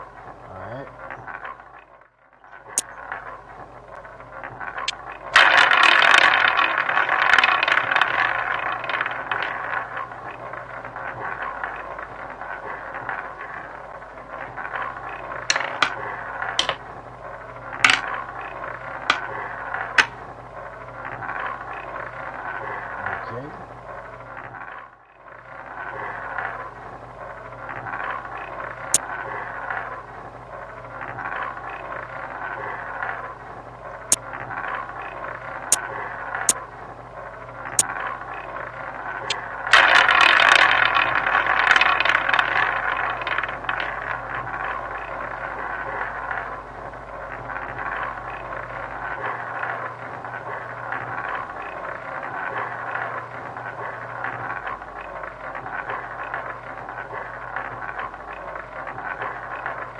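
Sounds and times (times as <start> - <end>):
roulette ball rattling round wheel: 0.0 - 59.9
chips clicking on table: 4.8 - 9.5, 15.5 - 16.8, 17.8 - 18.2, 19.9 - 20.2, 39.3 - 44.3.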